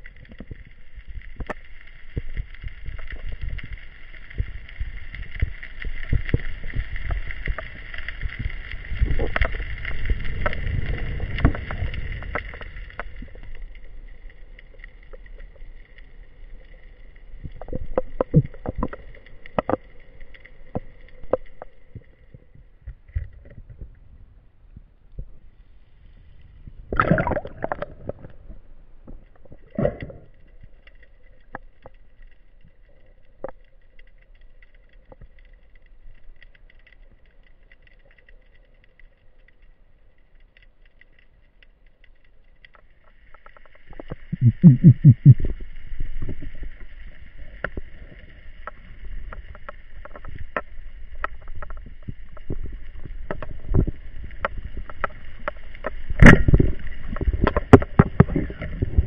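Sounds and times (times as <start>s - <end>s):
underwater water noise: 0.0s - 59.0s
underwater clicks and knocks: 17.4s - 24.0s, 26.9s - 32.0s, 46.2s - 59.0s.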